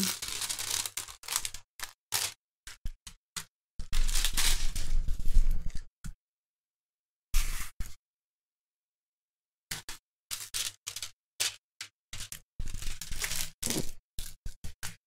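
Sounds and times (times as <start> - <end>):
plastic film crinkling: 0.0 - 2.4, 12.6 - 14.0.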